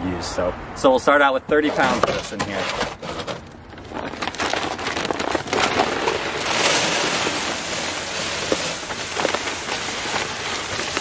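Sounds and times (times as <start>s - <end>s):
feed bag rustling: 3.1s - 11.0s
grain pouring into plastic tote: 3.9s - 11.0s.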